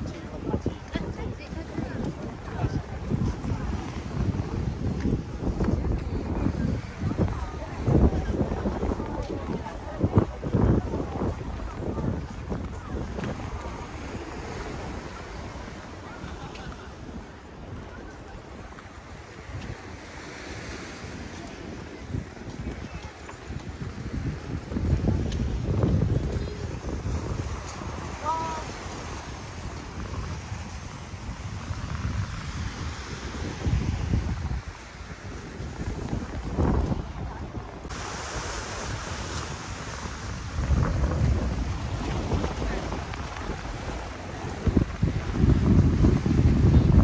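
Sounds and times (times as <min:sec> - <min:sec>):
waves washing on a beach: 0:00.0 - 0:47.0
wind buffeting microphone: 0:00.0 - 0:47.0
steady rushing noise: 0:20.9 - 0:47.0.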